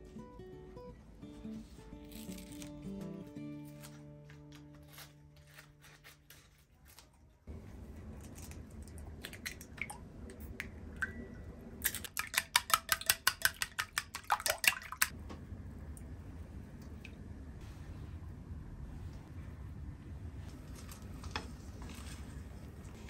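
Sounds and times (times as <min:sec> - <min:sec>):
low steady hum: 0:00.0 - 0:23.0
eggs cracking: 0:11.8 - 0:15.1
whisk clicking against bowl: 0:12.1 - 0:15.1.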